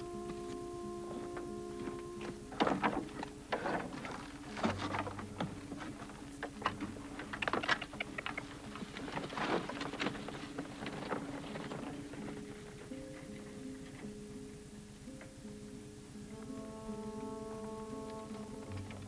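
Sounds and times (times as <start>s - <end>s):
horse hooves: 0.0s - 14.1s
faint low music: 0.0s - 19.0s
wooden wagon clattering: 2.2s - 14.1s.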